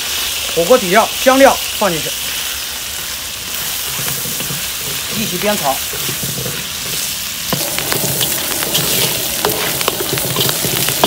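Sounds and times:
food sizzling in hot oil: 0.0 - 11.0
metal ladle scraping wok: 3.0 - 11.0.

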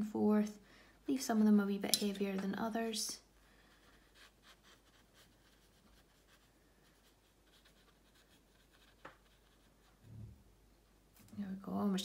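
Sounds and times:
brush scratching on paper: 3.6 - 10.1.

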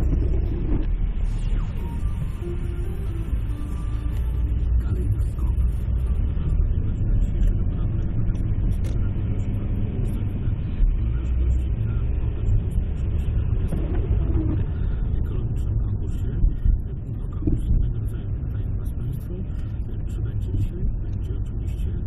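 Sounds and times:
car engine and tyre noise: 0.0 - 22.0.

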